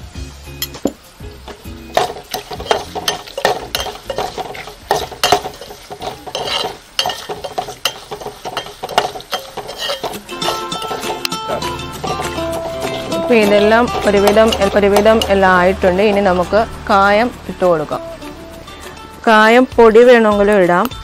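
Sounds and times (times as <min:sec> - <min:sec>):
food frying in oil: 0:00.0 - 0:21.0
spoon scraping metal pot: 0:01.4 - 0:17.2.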